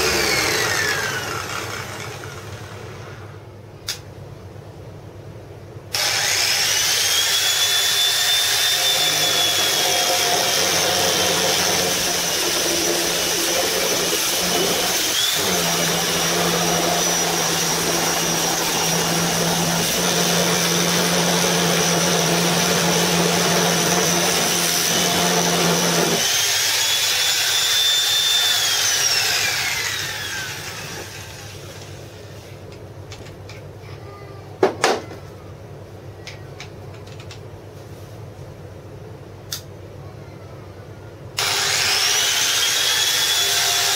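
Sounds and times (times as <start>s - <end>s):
angle grinder sanding wood: 0.0s - 3.0s, 6.0s - 31.6s
grinder winding down: 0.0s - 3.4s, 5.9s - 32.0s, 41.4s - 43.9s.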